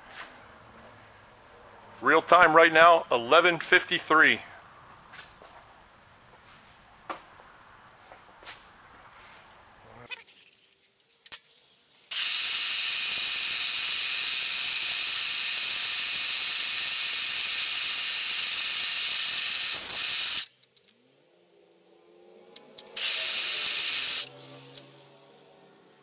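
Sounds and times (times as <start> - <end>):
air nozzle hissing: 12.1 - 20.5, 23.0 - 24.3.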